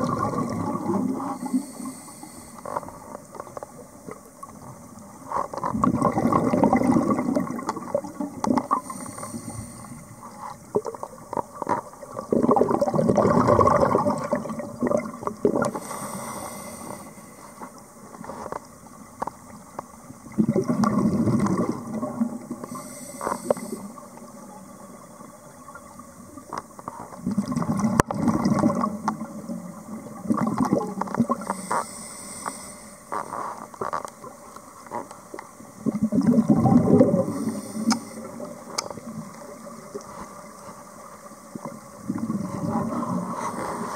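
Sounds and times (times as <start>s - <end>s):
gurgling exhaust bubbles: 0.0s - 1.2s, 5.7s - 8.7s, 12.1s - 15.7s, 20.3s - 22.6s, 27.2s - 31.4s, 35.8s - 37.4s
regulator inhale hiss: 1.2s - 3.1s, 8.7s - 10.6s, 15.7s - 17.8s, 22.6s - 24.2s, 31.4s - 33.8s, 37.1s - 38.5s, 42.8s - 43.9s.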